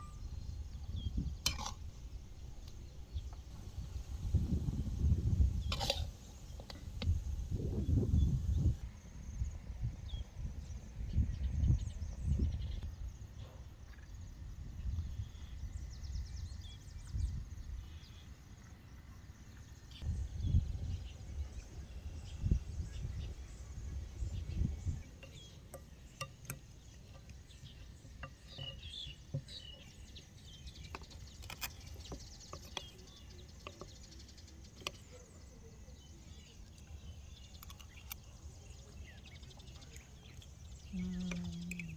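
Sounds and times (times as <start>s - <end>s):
low rumble on microphone: 2.2s - 5.8s, 6.8s - 18.2s, 19.9s - 25.5s, 39.4s - 41.9s
birds chirping: 10.0s - 41.9s.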